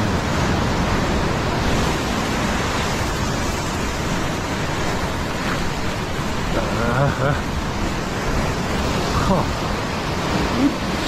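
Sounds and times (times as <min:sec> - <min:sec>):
surf breaking over rocks: 0:00.0 - 0:11.0.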